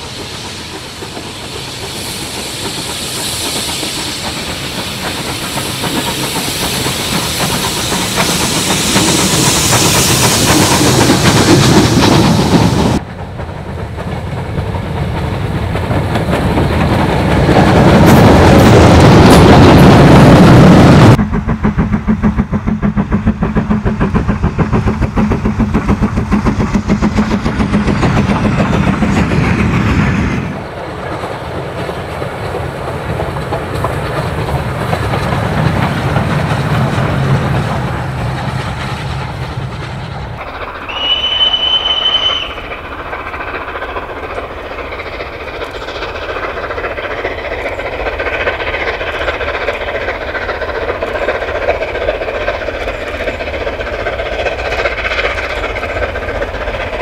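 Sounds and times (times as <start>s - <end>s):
steam locomotive working: 0.0s - 57.0s
train wheels clattering over rail joints: 0.0s - 57.0s
steam whistle blast: 40.8s - 42.7s.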